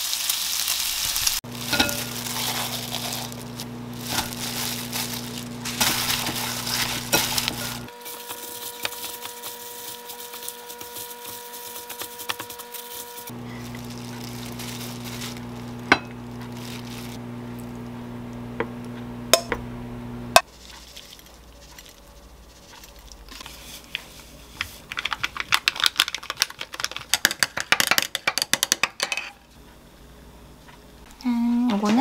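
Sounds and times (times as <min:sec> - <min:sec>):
electrical appliance hum: 0:00.9 - 0:32.0
dishes clinking: 0:01.6 - 0:02.2, 0:15.9 - 0:16.2.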